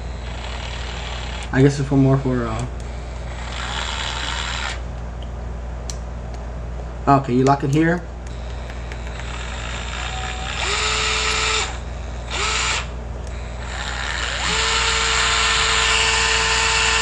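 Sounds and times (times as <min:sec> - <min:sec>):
cordless screwdriver whining: 0:00.0 - 0:01.6, 0:02.5 - 0:04.8, 0:08.3 - 0:17.0.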